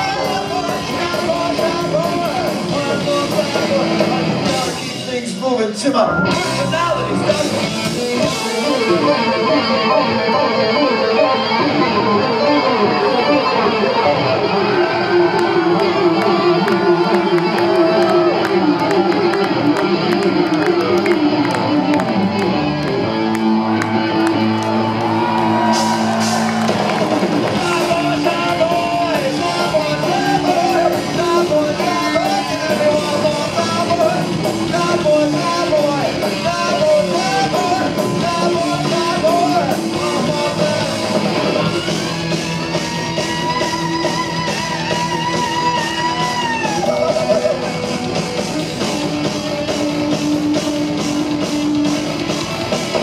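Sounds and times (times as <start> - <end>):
electric guitar: 0.0 - 5.1, 6.0 - 53.0
drum kit: 0.0 - 10.0, 14.9 - 53.0
man singing: 0.0 - 10.4, 27.5 - 41.8
bass guitar: 0.0 - 53.0.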